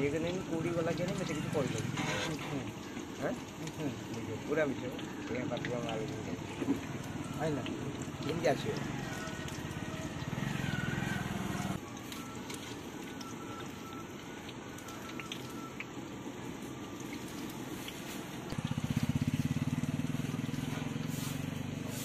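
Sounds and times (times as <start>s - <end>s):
food sizzling in deep oil: 0.0s - 22.0s.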